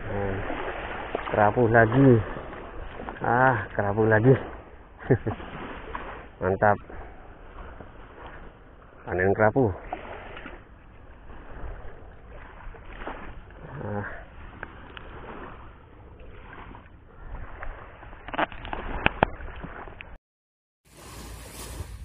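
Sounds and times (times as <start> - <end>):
water washing on shore: 0.0 - 20.2, 20.9 - 22.0
wind: 0.0 - 20.2, 20.8 - 22.0.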